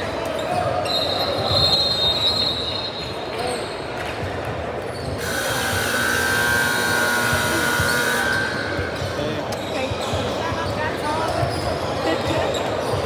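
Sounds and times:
hall noise: 5.2s - 9.2s.

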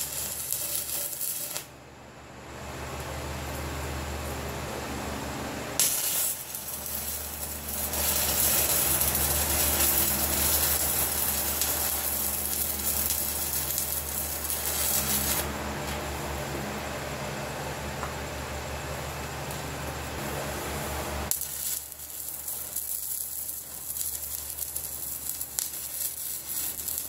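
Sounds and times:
arc welding crackling sizzle: 0.0s - 1.8s, 5.6s - 16.6s, 17.8s - 27.0s.

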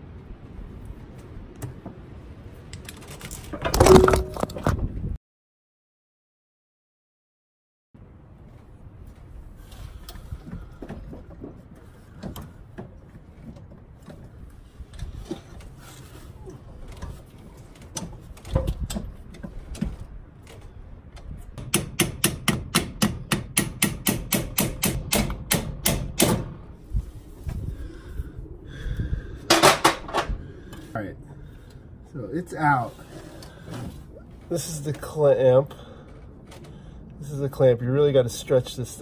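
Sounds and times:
metal clank: 3.6s - 4.7s.

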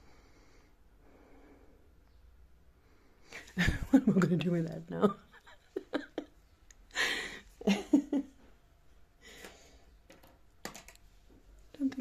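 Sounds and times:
woman breathing: 0.0s - 3.6s, 6.9s - 7.6s, 9.2s - 10.0s.

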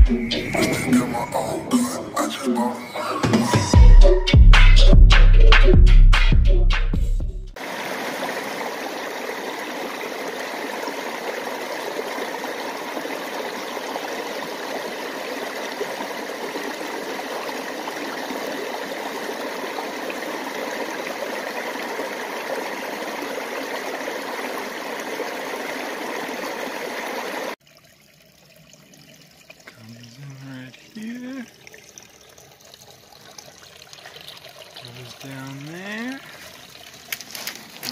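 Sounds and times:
creek rushing over boulders: 7.6s - 27.6s, 28.6s - 37.9s.

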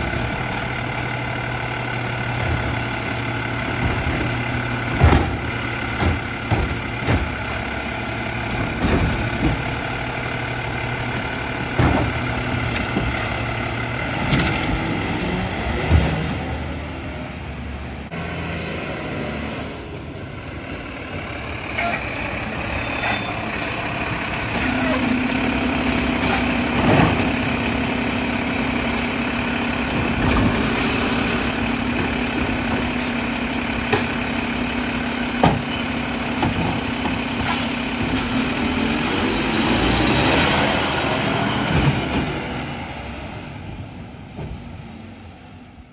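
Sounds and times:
diesel engine and hydraulics: 0.0s - 45.9s
knocks and clunks of cart: 2.2s - 10.4s, 11.0s - 16.4s, 24.5s - 28.0s, 29.3s - 38.8s, 41.5s - 42.8s.

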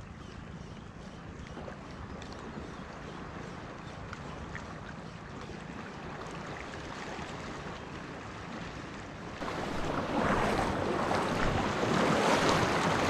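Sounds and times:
waves lapping over rocks: 9.4s - 13.0s.

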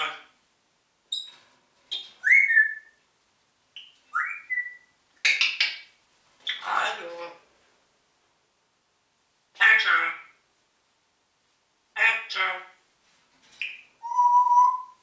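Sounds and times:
parrot whistles: 2.2s - 3.0s, 4.1s - 4.9s, 14.0s - 15.0s
parrot clicks and raspy calls: 5.2s - 5.9s.

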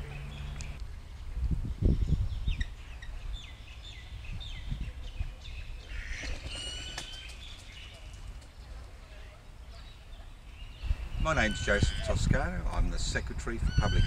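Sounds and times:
birds chirping: 0.0s - 14.0s
ringing bird call: 13.7s - 14.0s.

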